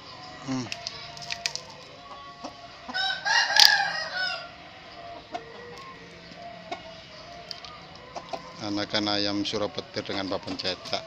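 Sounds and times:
young cockerel crowing: 0:02.9 - 0:04.6.

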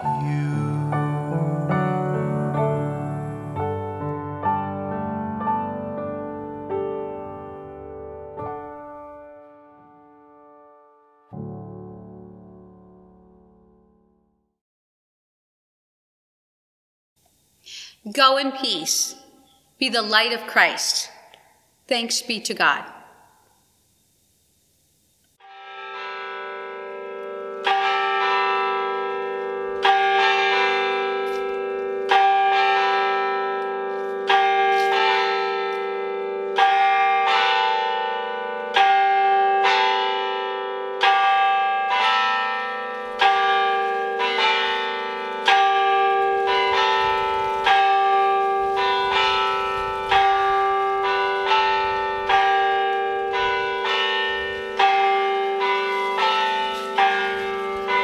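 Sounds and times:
church bells ringing: 0:00.0 - 0:09.3, 0:25.4 - 0:58.0.

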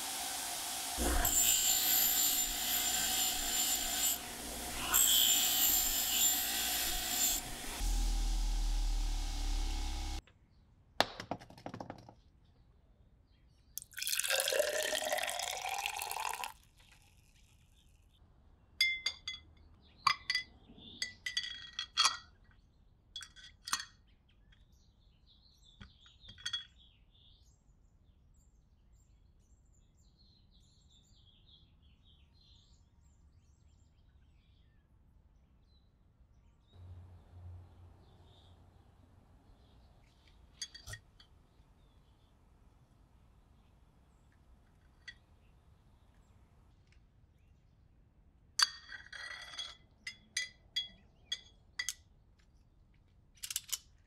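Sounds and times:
bench grinder running: 0:00.0 - 0:10.2
liquid pouring into a glass: 0:13.8 - 0:17.6
knife handle clinking on glass: 0:18.8 - 0:19.5, 0:48.6 - 0:52.0.

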